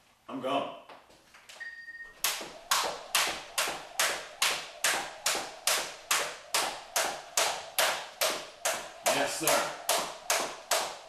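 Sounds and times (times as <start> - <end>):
electronic timer beep: 1.6 - 2.2
jump rope slapping floor: 2.1 - 11.0.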